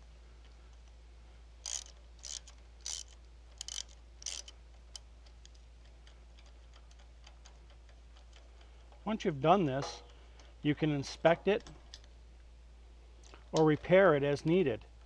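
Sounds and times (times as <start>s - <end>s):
ratchet wrench clicking: 1.6s - 9.0s.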